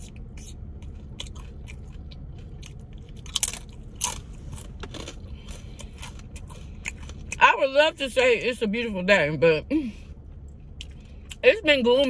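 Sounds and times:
chewing crunchy chips: 0.0s - 7.4s.

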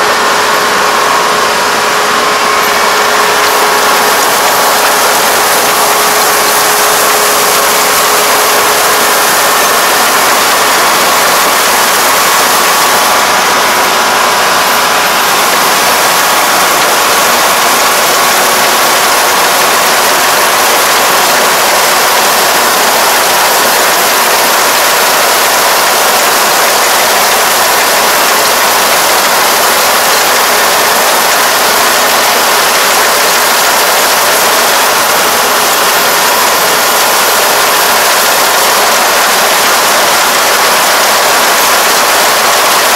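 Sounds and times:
combine harvester running: 0.0s - 42.9s.

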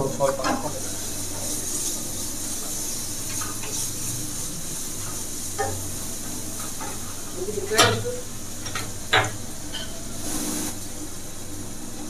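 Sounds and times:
food sizzling in a pan: 0.6s - 8.8s, 9.7s - 10.8s.

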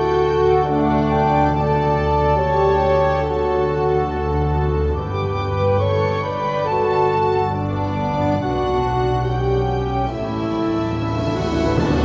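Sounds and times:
slow music with sustained chords: 0.0s - 12.0s.

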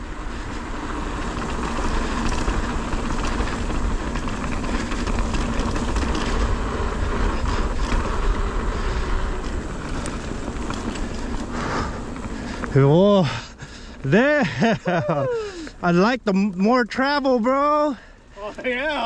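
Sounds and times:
bike tyres rolling over dirt: 0.0s - 19.0s
bike rattling clicks: 0.3s - 12.8s.

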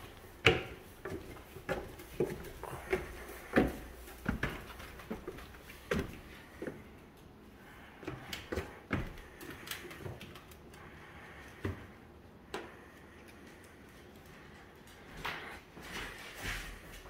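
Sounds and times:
footsteps on hardwood floor: 0.0s - 7.0s, 8.0s - 10.2s, 15.0s - 17.0s.

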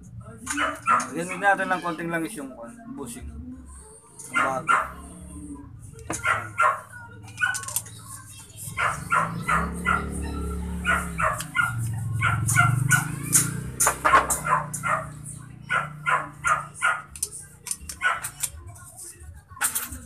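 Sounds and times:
dog barking: 0.5s - 1.2s, 4.2s - 5.1s, 6.2s - 7.8s, 8.7s - 17.2s, 17.9s - 18.4s
metal parts clicking: 7.2s - 7.9s, 17.1s - 18.6s.

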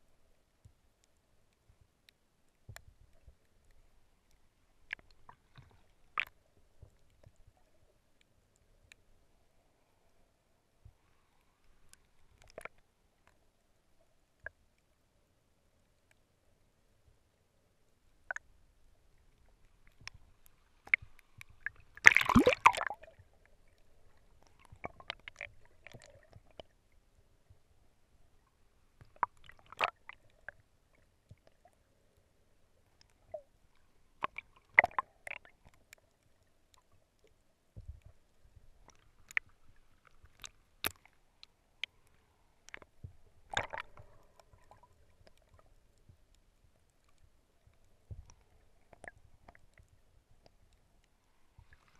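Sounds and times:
water gurgling and sloshing: 18.1s - 51.9s
underwater clicks: 19.8s - 26.7s, 29.0s - 30.3s, 34.2s - 36.0s, 38.8s - 45.6s.

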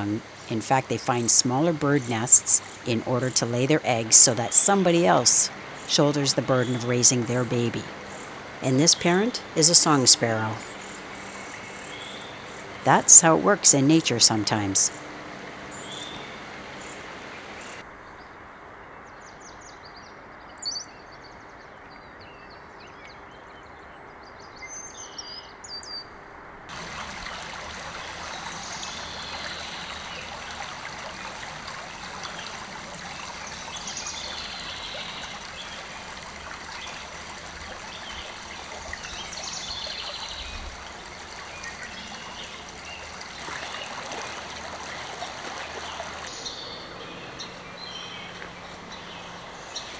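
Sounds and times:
stream running over gravel: 0.0s - 17.8s, 26.7s - 49.9s
low steady hiss: 0.0s - 49.9s
small birds chirping: 19.0s - 26.1s, 27.0s - 44.1s.

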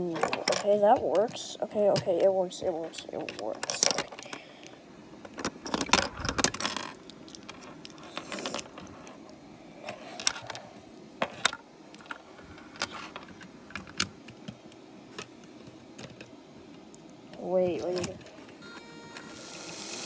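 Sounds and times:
plastic bricks clicking and rattling: 3.0s - 4.4s, 5.3s - 8.9s.

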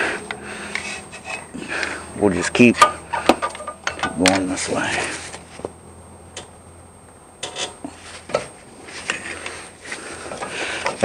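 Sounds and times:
pry bar scraping metal: 7.4s - 8.4s.

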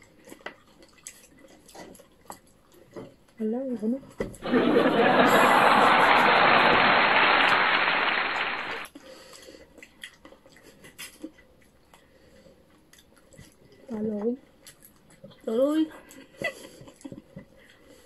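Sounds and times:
crowd applause and laughter: 4.4s - 8.9s.

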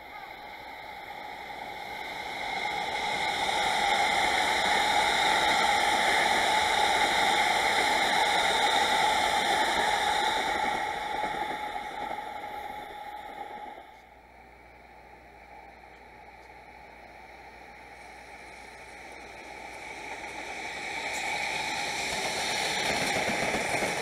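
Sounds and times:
electric train passing: 0.0s - 24.0s.

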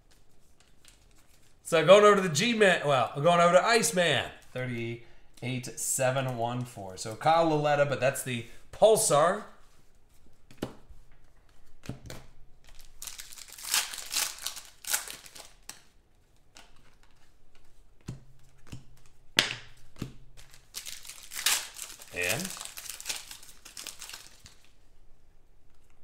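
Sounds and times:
cards and foil wrapper rustling: 12.6s - 17.6s, 20.3s - 24.8s.

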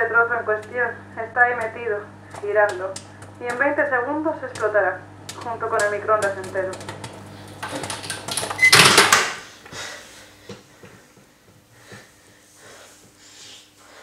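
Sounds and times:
microwave running hum: 0.0s - 14.0s
microwave beep: 8.4s - 9.2s
breathing and sniffing: 9.5s - 11.1s, 11.7s - 14.0s.

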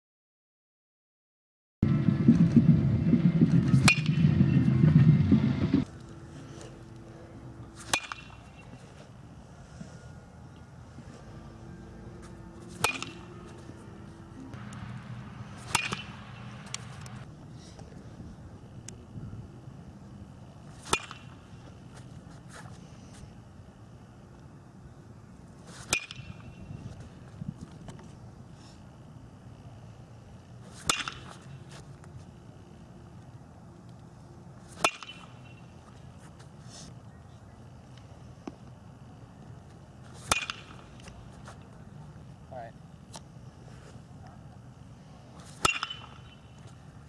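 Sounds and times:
metal bat pinging ball: 3.8s - 4.2s, 7.8s - 8.7s, 12.3s - 13.5s, 15.5s - 16.9s, 20.8s - 21.4s, 25.9s - 26.5s, 30.8s - 31.2s, 34.8s - 35.6s, 40.3s - 40.8s, 45.6s - 46.5s.

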